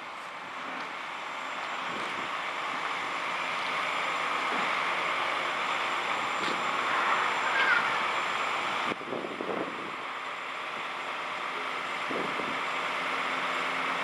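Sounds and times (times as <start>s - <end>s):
crane engine and hydraulics running: 0.0s - 14.0s.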